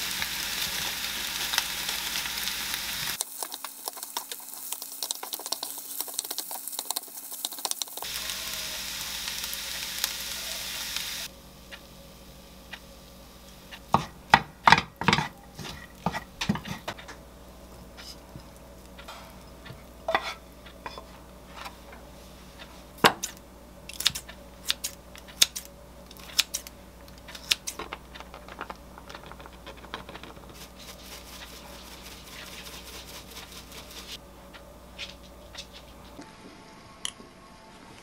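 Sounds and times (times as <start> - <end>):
wooden spatula scraping frying pan: 15.0 - 17.0, 19.7 - 21.8.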